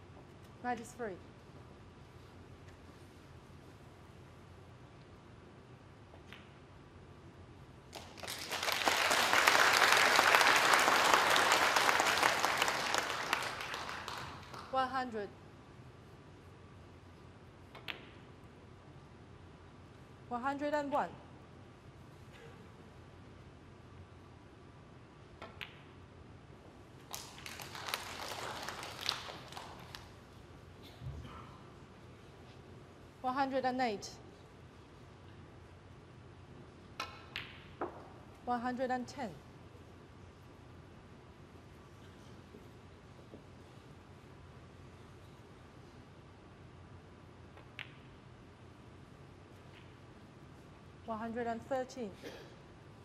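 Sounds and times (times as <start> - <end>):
audience applauding: 8.0 - 14.7, 27.1 - 30.0
snooker balls clicking together: 25.4 - 26.0, 47.5 - 48.3.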